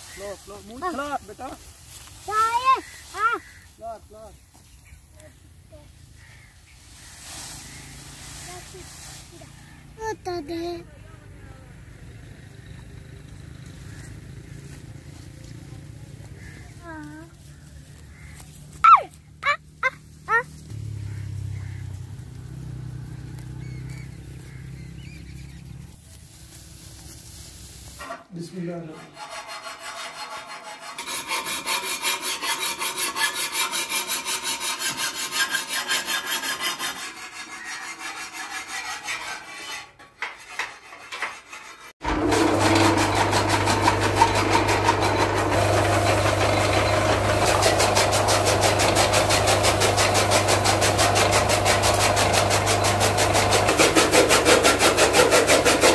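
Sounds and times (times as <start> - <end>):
rhythmic rasping scrape: 28.9 - 42.0, 42.6 - 55.9
blades chopping fodder: 42.0 - 55.9
chaff cutter motor humming: 42.0 - 55.9.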